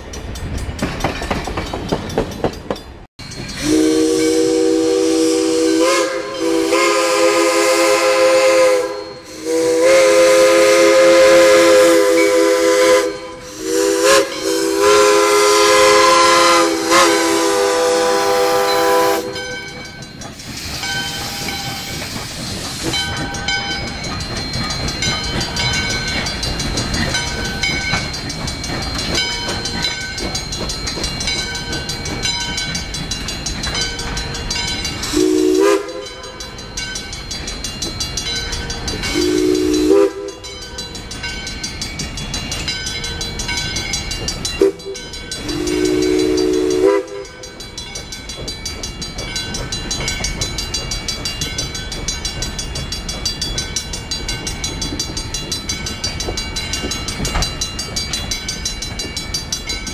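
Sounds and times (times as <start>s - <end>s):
crossing bell ringing: 0.0s - 59.9s
train coaches clacking over rails: 0.0s - 59.9s
steam locomotive chime whistle: 3.2s - 59.9s.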